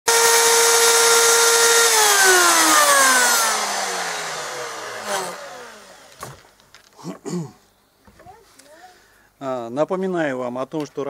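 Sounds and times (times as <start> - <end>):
electric router whining: 0.1 - 6.5.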